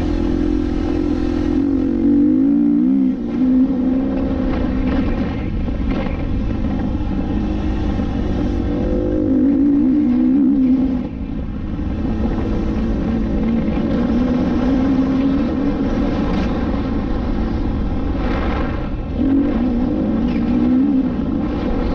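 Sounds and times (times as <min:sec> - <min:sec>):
dirt bike engine revving: 0:00.0 - 0:11.2.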